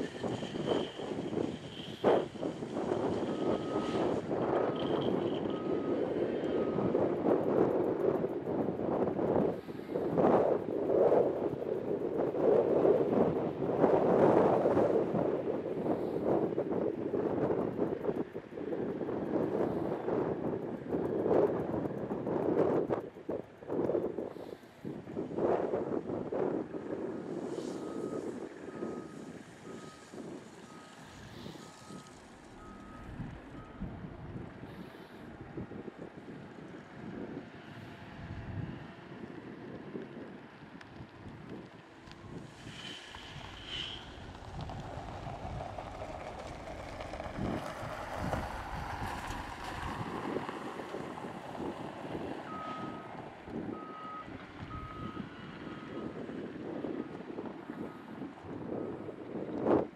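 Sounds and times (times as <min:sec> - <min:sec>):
loader engine under load: 0:00.0 - 0:10.2, 0:26.6 - 0:37.4, 0:41.9 - 0:59.0
diesel engine running: 0:00.0 - 0:16.3, 0:27.0 - 0:35.7
reversing alarm beeping: 0:02.1 - 0:07.5, 0:27.7 - 0:34.1, 0:52.5 - 0:53.1, 0:53.7 - 0:56.2
gravel pouring into steel body: 0:42.4 - 0:45.7
backup alarm beeping: 0:52.5 - 0:53.1.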